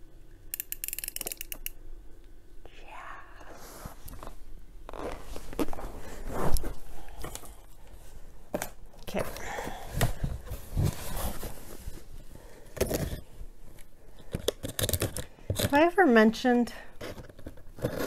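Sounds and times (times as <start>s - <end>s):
cardboard box scraping: 10.2s - 12.0s.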